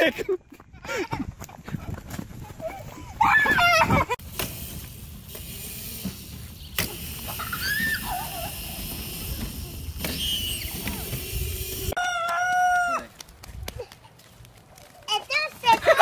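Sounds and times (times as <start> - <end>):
small dirt bike engine running: 2.1 - 12.0.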